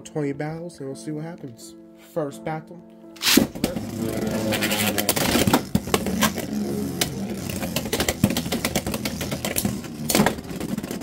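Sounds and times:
spinning tops whirring: 3.2 - 11.0.

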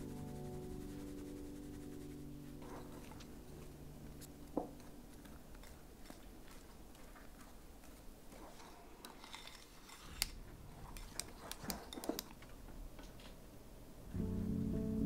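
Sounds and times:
kitchen utensils clicking: 10.9 - 12.4.

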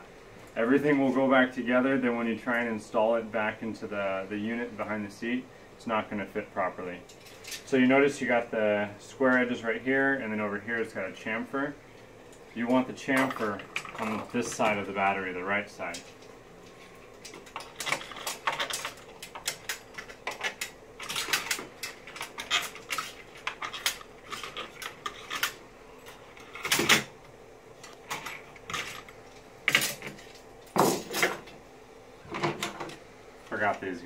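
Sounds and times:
metal and plastic parts clattering: 17.2 - 27.1, 28.0 - 29.1.

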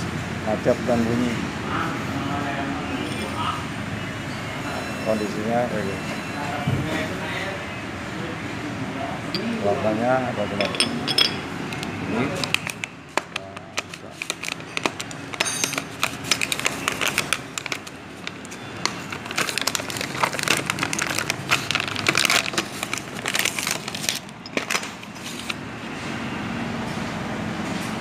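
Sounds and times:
plastic packaging crinkling: 12.3 - 25.6.

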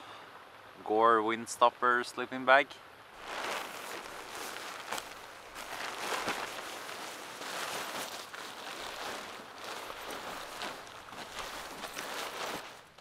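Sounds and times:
sleeping bag fabric rustling: 3.2 - 13.0.

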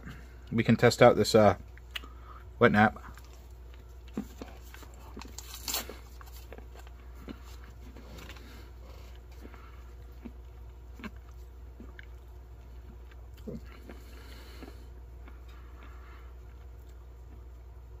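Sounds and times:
steady low hum: 0.0 - 18.0
wrapper packet crinkling: 4.6 - 7.0.

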